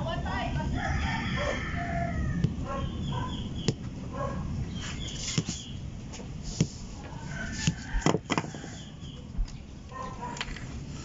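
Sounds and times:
low background rumble: 0:00.0 - 0:11.0
chickens calling: 0:00.8 - 0:05.8, 0:07.0 - 0:09.3.

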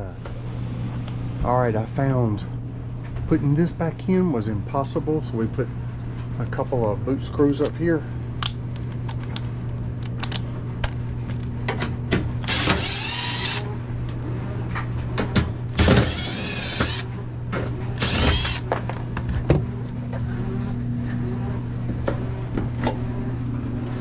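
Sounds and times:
steady low hum: 0:00.0 - 0:24.0
impact driver driving screws: 0:12.4 - 0:13.6, 0:15.8 - 0:17.1, 0:18.0 - 0:18.7.

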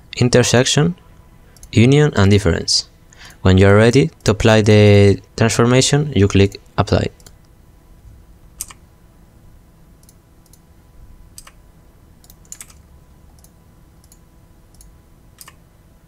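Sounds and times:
faint low hum: 0:00.0 - 0:16.0
mouse and keyboard clicks: 0:12.2 - 0:12.8.

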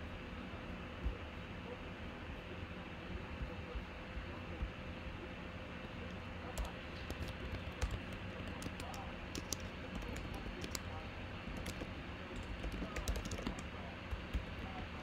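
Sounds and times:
steady low hum: 0:00.0 - 0:15.0
keyboard typing clicks: 0:06.6 - 0:14.9.

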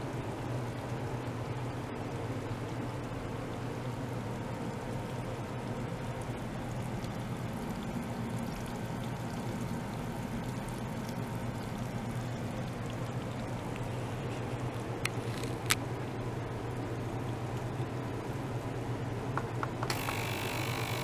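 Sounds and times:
pump humming: 0:00.0 - 0:21.0
water flowing through tubing: 0:02.5 - 0:18.8.

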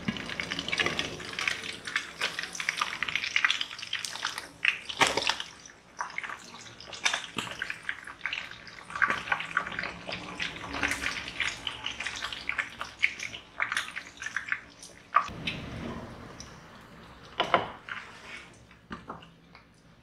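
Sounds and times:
fish frying in hot oil: 0:00.0 - 0:18.6
spatula scraping a wok: 0:17.8 - 0:18.6.

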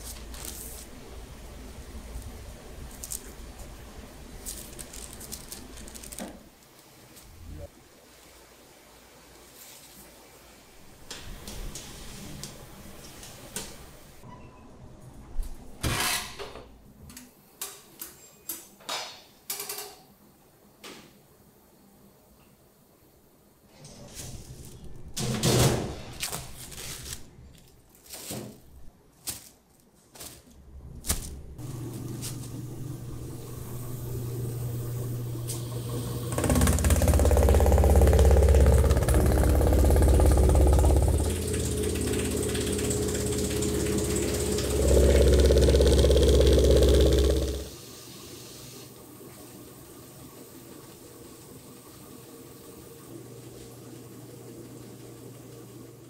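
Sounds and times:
food slicing machine humming: 0:30.8 - 0:47.8.

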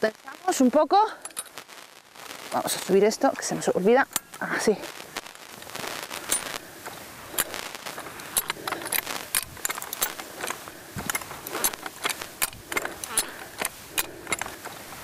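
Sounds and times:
ratcheting jack clanking: 0:08.3 - 0:14.5.

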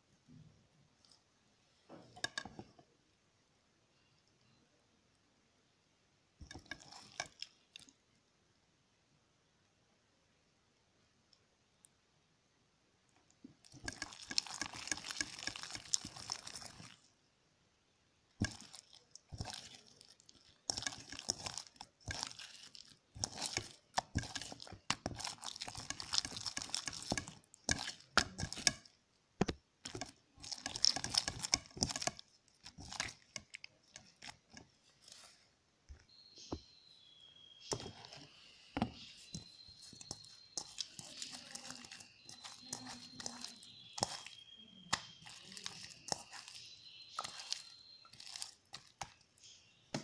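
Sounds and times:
slime squelching: 0:06.4 - 0:08.1, 0:13.2 - 0:17.2, 0:18.3 - 0:50.0.

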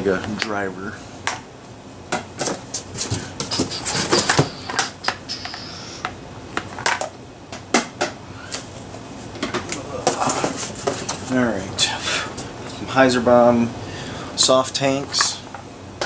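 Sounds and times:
plastic discs clacking: 0:02.2 - 0:05.2.

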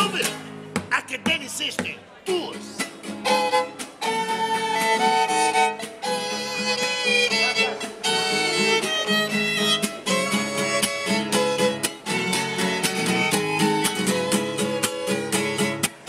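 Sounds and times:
acoustic guitar strumming: 0:00.0 - 0:01.9, 0:02.5 - 0:16.0
violin playing melody: 0:03.2 - 0:15.8.

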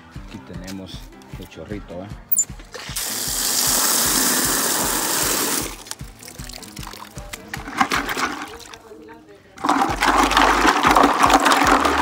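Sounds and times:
water gushing into a bucket: 0:02.7 - 0:08.9, 0:09.6 - 0:12.0.

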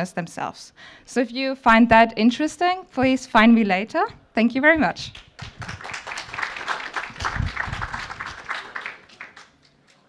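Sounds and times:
audience applauding: 0:05.2 - 0:10.0.

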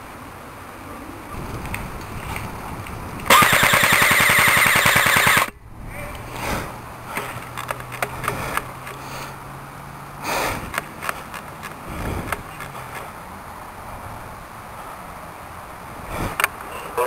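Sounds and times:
airsoft rifle rattle of shots: 0:03.3 - 0:05.5.

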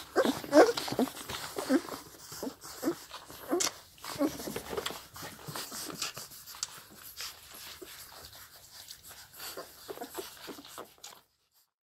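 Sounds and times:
puppies squeaking and grunting: 0:00.0 - 0:11.2
puppies suckling wet smacking: 0:00.0 - 0:11.3.

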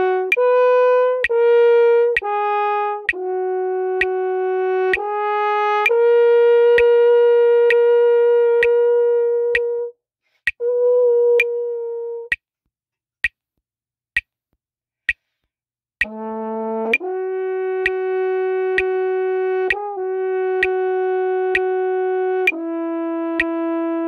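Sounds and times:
french horn held notes: 0:00.0 - 0:09.9, 0:10.6 - 0:12.3, 0:16.0 - 0:24.0
metronome clicking: 0:00.3 - 0:01.5, 0:02.1 - 0:03.3, 0:04.0 - 0:04.2, 0:06.7 - 0:06.9, 0:16.9 - 0:17.1, 0:21.5 - 0:21.8.

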